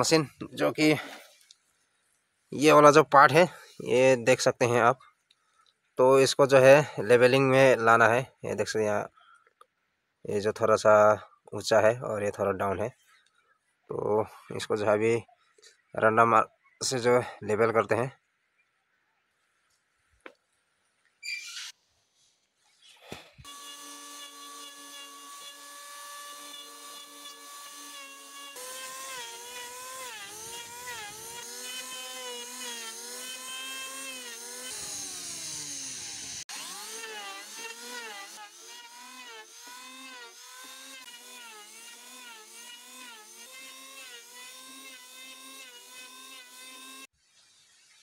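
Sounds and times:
electric hand planer running: 0:23.4 - 0:47.1.

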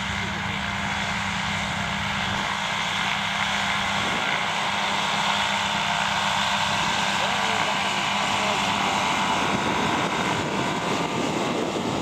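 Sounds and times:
small propeller engine running: 0:00.0 - 0:12.0.

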